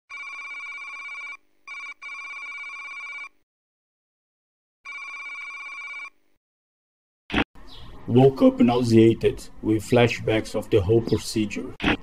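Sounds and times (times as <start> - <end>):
warbling electronic telephone ring: 0.1 - 3.3, 4.9 - 6.1.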